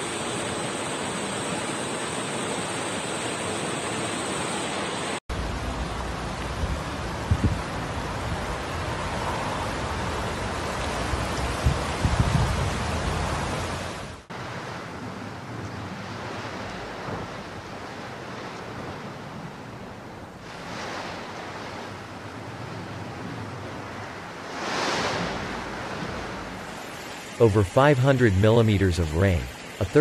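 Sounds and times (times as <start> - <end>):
floodwater rushing: 0.0 - 30.0
wind buffeting microphone: 5.6 - 14.0.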